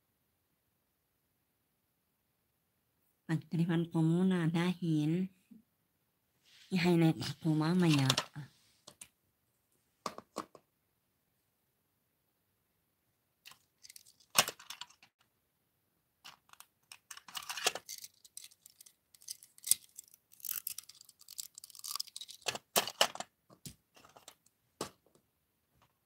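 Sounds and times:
plastic toys clicking and tapping: 13.5s - 15.1s, 16.2s - 25.2s.

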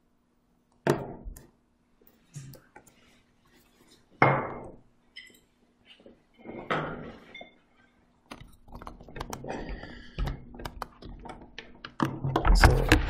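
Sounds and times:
tapping and handling clicks: 10.2s - 13.0s.

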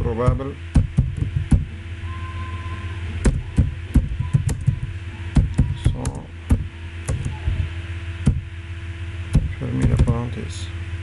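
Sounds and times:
steady low hum: 0.0s - 11.0s
keyboard typing: 3.3s - 7.3s.

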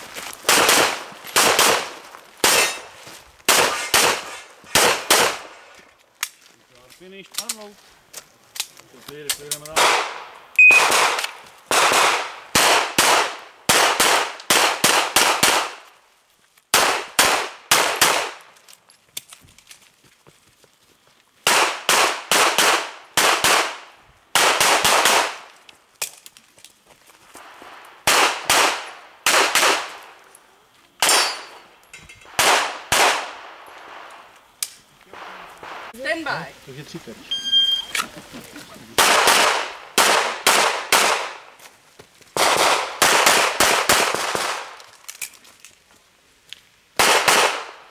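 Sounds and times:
pistol shots: 0.5s - 2.9s, 3.5s - 5.5s, 9.7s - 15.8s, 16.7s - 18.4s, 21.4s - 25.5s, 28.0s - 30.1s, 31.0s - 31.6s, 32.3s - 34.1s, 39.0s - 41.4s, 42.4s - 44.7s, 47.0s - 47.8s
shot timer beep: 10.6s - 10.9s, 37.3s - 37.9s.

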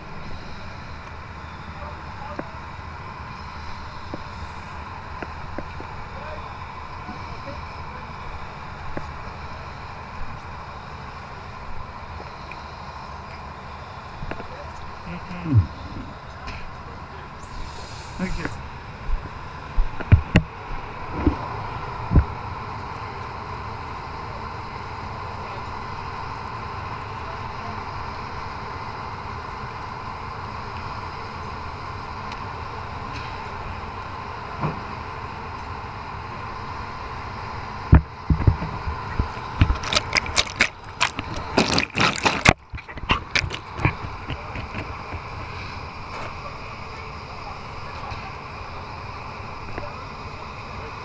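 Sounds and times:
faint whine: 0.0s - 51.0s
underwater hiss: 17.4s - 18.6s
diver's exhaled bubbles gurgling: 39.6s - 45.0s.

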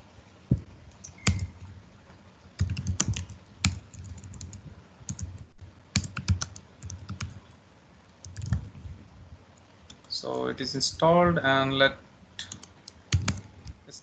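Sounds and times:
computer keyboard typing: 0.9s - 1.7s, 2.6s - 7.4s, 8.2s - 8.7s, 12.4s - 13.8s.

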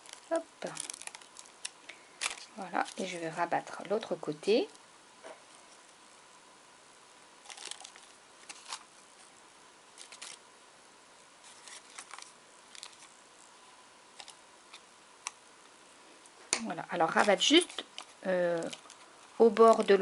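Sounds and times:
brush rustling tissue paper: 11.4s - 14.3s, 16.9s - 20.0s.

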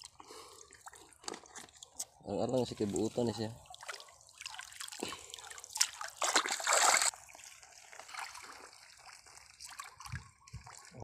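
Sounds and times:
faint water trickling: 0.0s - 11.0s
shallow water splashing: 2.7s - 10.9s.

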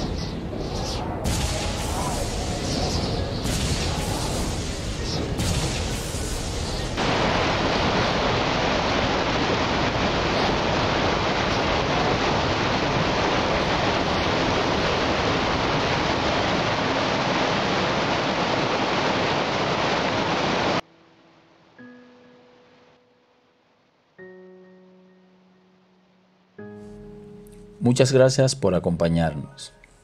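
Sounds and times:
waterfall rushing: 0.0s - 20.8s.

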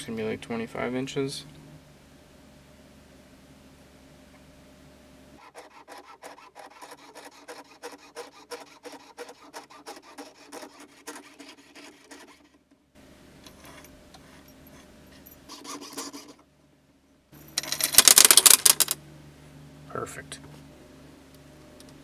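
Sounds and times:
saw rasping through metal wire: 5.4s - 12.6s, 15.4s - 16.4s.

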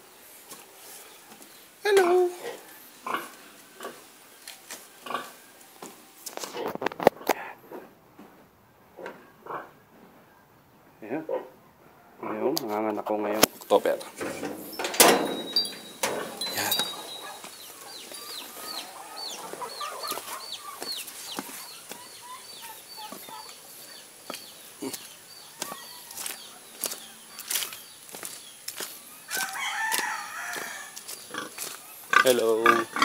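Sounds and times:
chickens clucking: 13.8s - 33.0s.

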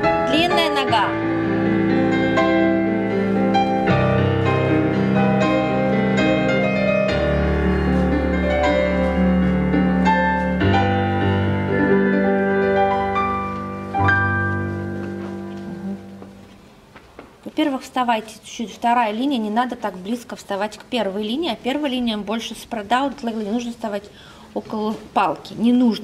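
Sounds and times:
solo piano music: 0.0s - 16.6s.

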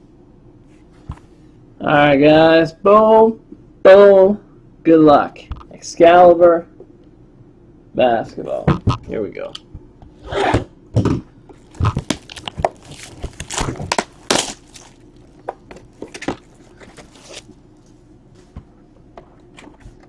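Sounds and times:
cellophane crinkling: 11.6s - 18.0s.

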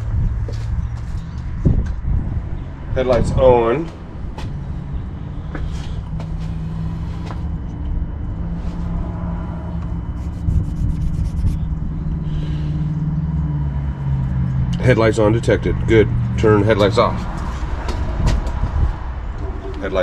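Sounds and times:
low even hum: 0.0s - 20.0s
low mechanical rumble: 0.0s - 20.0s.

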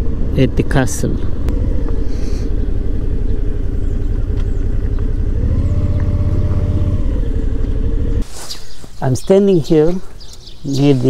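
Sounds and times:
motorcycle engine running: 0.0s - 8.4s.

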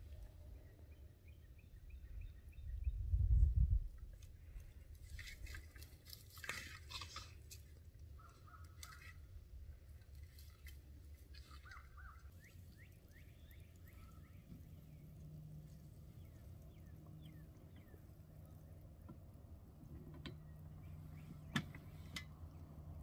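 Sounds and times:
low outdoor rumble: 0.0s - 23.0s
dry brush crackling: 5.0s - 12.8s
bird chirps: 11.4s - 18.8s, 20.4s - 22.1s.

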